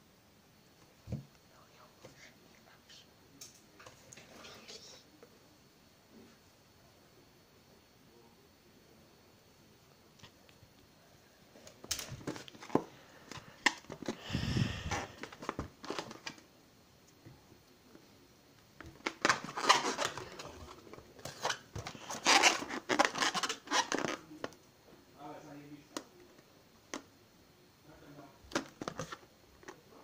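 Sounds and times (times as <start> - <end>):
rubbing and scratching on balloon: 19.0 - 24.3.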